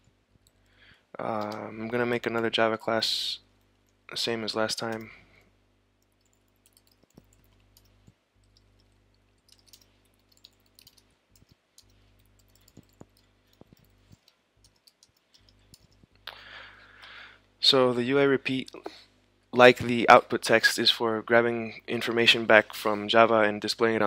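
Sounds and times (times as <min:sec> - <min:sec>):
steady low hum: 0:00.0 - 0:24.0
keyboard and mouse clicks: 0:06.0 - 0:16.2.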